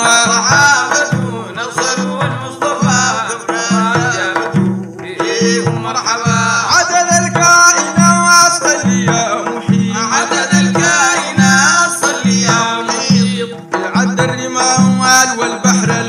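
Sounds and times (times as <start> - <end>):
frame drums beating: 0.0 - 16.0
men singing: 0.0 - 16.0.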